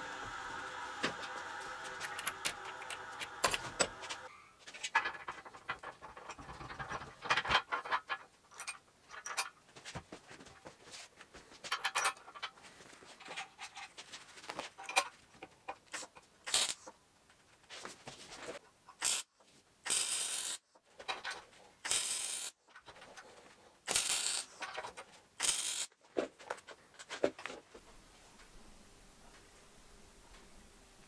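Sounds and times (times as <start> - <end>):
steady hum: 0.0 - 4.3
metal pins clinking and scraping: 1.9 - 9.6, 11.7 - 14.0.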